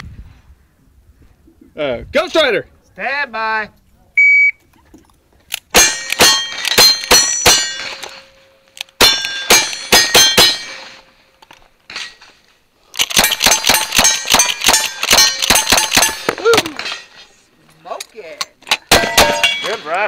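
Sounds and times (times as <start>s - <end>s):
steel targets ringing: 5.8s - 11.2s, 18.9s - 20.0s.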